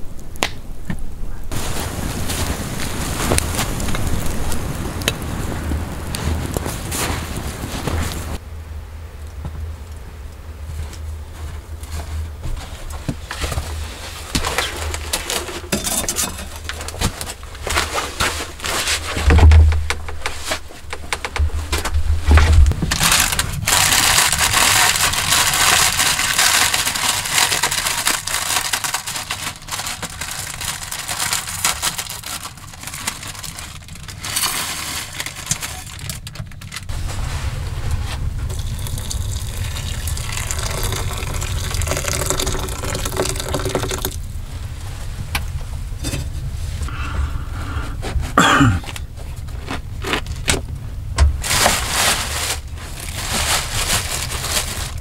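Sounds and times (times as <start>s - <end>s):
water poured into bowl: 38.5s - 44.2s.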